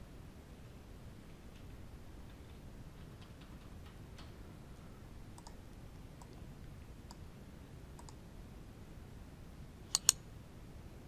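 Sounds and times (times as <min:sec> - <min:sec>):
low background hum: 0:00.0 - 0:11.0
computer mouse clicks: 0:05.4 - 0:05.6, 0:06.2 - 0:06.4, 0:08.0 - 0:08.2, 0:09.9 - 0:10.2.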